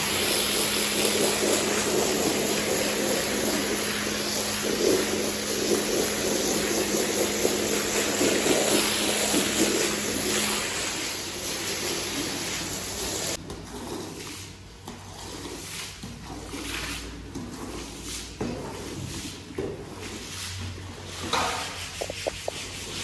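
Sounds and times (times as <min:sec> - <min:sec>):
pressure washer spraying rug: 0:00.0 - 0:13.4.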